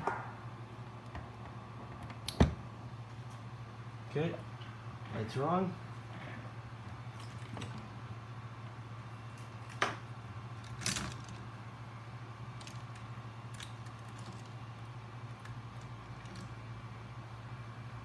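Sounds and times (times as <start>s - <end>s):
cooling fan hum: 0.0s - 18.0s.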